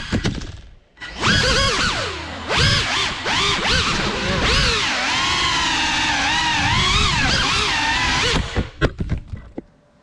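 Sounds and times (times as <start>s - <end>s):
drone motors whining: 1.0s - 8.8s.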